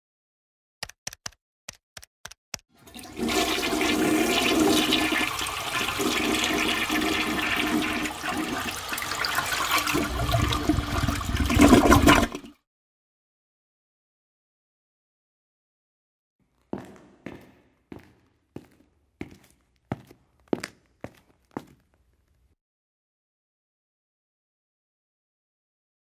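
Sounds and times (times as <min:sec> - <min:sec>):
quick clicks: 0:00.8 - 0:02.7
water rushing: 0:02.8 - 0:12.5.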